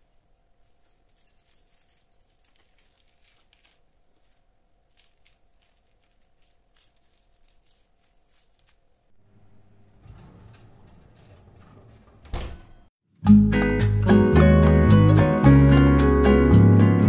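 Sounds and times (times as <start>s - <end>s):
soft ticks and rustles: 0.1s - 8.8s.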